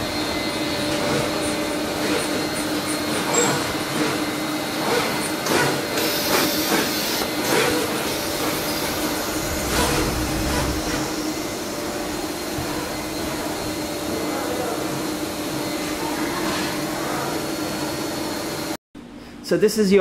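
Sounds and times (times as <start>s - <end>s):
machine hum and hiss: 0.0s - 19.3s
steady tones: 8.5s - 11.6s.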